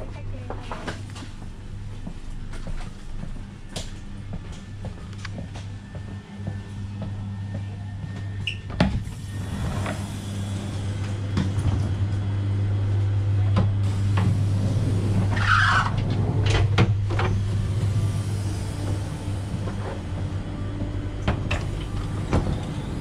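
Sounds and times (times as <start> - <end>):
train coach low hum: 0.0 - 23.0.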